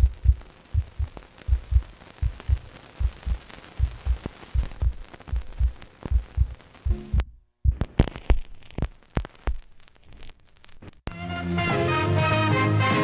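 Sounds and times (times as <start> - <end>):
faint hiss: 0.0 - 7.1, 7.8 - 11.1
heartbeat thumps: 0.0 - 8.8.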